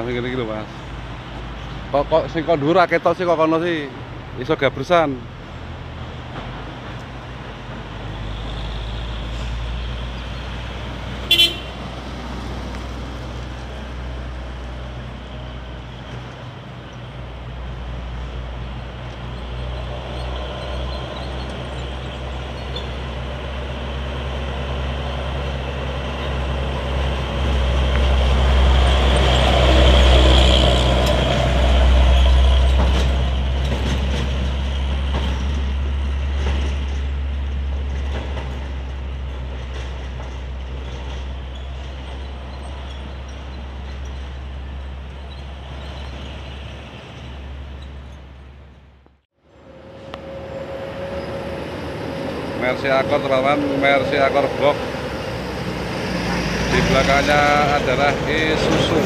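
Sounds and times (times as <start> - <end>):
diesel truck engines rumbling: 0.0 - 59.0
horn toot: 11.2 - 11.8
vehicle passing close: 19.5 - 37.0, 49.5 - 59.0.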